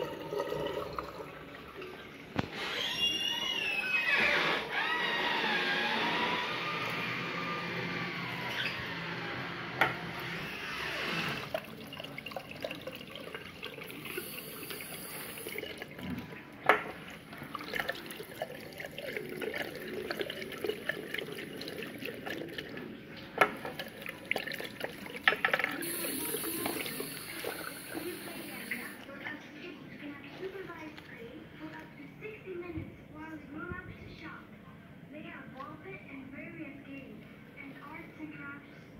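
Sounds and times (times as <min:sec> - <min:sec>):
tap water running into basin: 0:00.0 - 0:03.6, 0:09.8 - 0:29.1.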